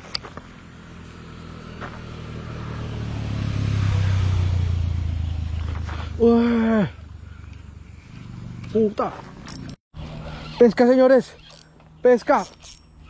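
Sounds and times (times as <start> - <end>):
motor engine drone: 0.0 - 8.8.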